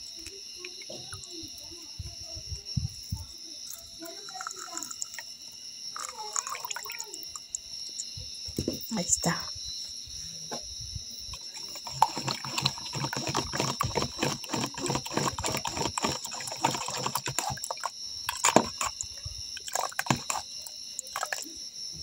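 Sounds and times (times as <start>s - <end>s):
liquid splashing: 11.3s - 21.5s.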